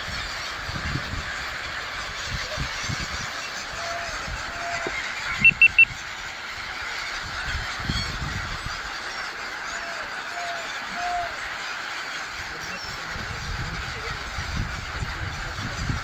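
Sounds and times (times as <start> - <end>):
gulls calling: 0.0 - 16.0
short high-pitched beeps: 5.4 - 5.9.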